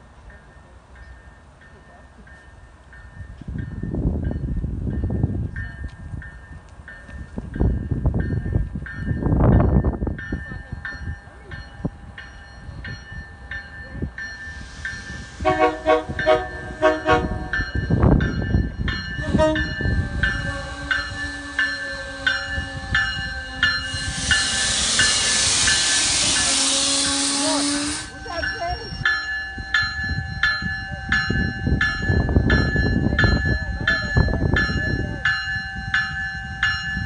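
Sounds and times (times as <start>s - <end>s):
train bell ringing: 0.1s - 37.0s
loud hiss: 14.5s - 15.7s, 23.8s - 28.2s
train horn blasts: 15.3s - 17.6s, 19.2s - 28.1s.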